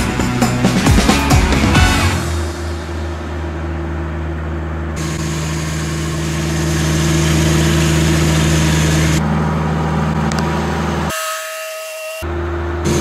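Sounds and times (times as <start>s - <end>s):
machine hum: 0.0s - 11.1s, 12.2s - 13.0s.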